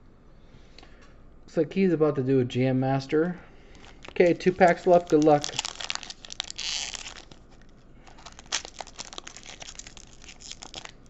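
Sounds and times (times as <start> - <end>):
wrapper crinkling: 3.6 - 11.0
foil pack tearing: 3.7 - 11.0
wrapper snap: 3.7 - 11.0.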